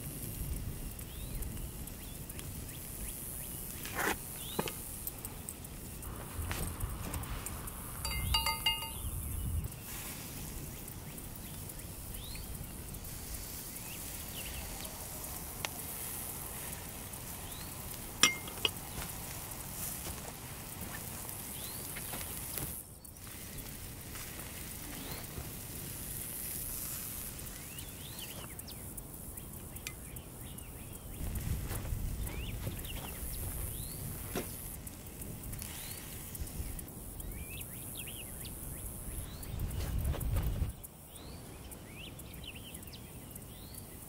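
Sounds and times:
food sizzling over charcoal: 0.0s - 44.0s
sharp clinks: 8.0s - 9.3s, 18.2s - 18.8s
faint high chirps: 8.0s - 9.7s.

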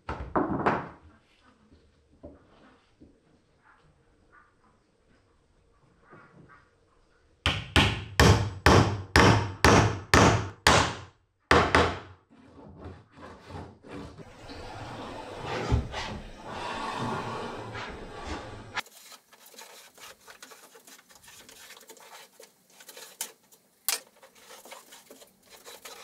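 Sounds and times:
scraping on wooden floor: 12.3s - 26.0s.

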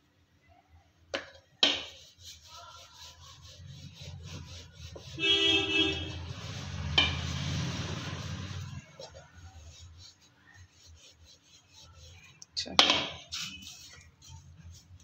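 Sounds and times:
horn honking: 5.0s - 8.9s.

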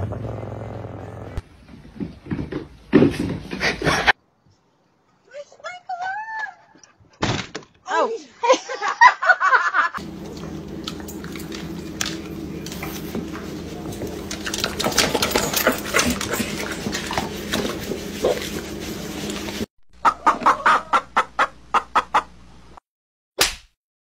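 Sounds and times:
steady low hum: 10.0s - 19.7s
hens clucking: 20.0s - 22.4s.

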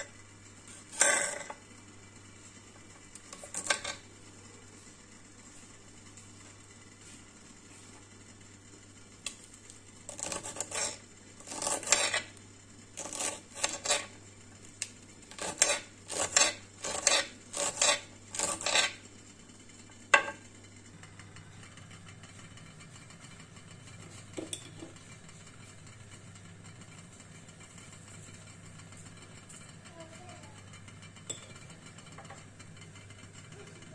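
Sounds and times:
knife chopping on cutting board: 10.1s - 12.2s, 15.3s - 19.0s.

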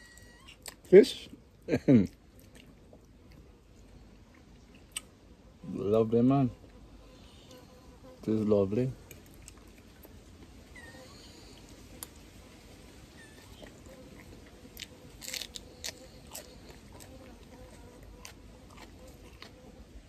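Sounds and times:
person chewing food: 2.0s - 5.2s, 9.0s - 10.6s, 11.5s - 12.3s, 13.3s - 20.0s
crisp lettuce crunches: 13.4s - 19.7s.

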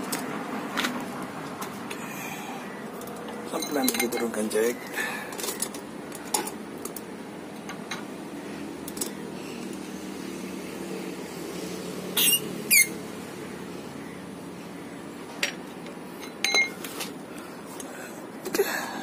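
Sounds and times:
hydraulic jack squeaks: 12.2s - 13.0s.

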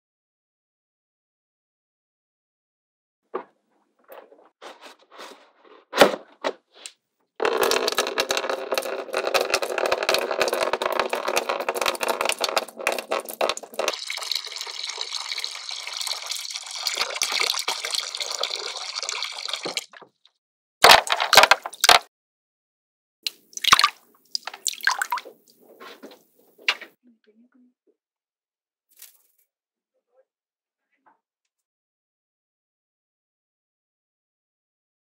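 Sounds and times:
water pouring into plastic basin: 7.4s - 20.1s, 20.8s - 22.0s, 23.3s - 25.6s.

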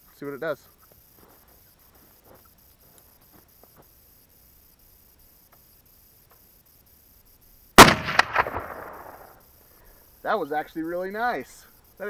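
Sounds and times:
faint ticks: 0.1s - 12.0s
rifle shot echoing: 7.8s - 9.4s.

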